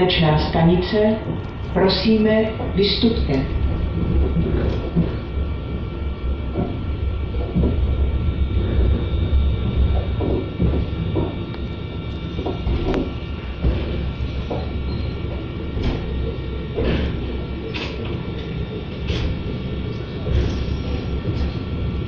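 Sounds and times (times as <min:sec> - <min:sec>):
faint steady whine: 0:00.0 - 0:22.0
train rumble: 0:00.0 - 0:22.0.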